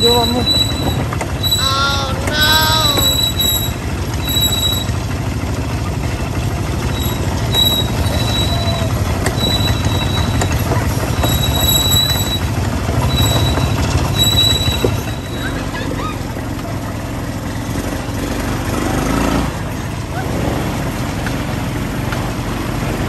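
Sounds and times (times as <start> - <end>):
short high-pitched tones: 0.0 - 5.0
quad bike engines rumbling: 0.0 - 23.0.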